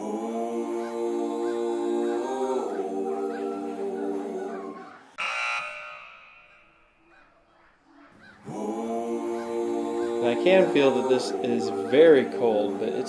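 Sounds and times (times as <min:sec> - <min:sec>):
bright musical accent: 0:08.5 - 0:13.0.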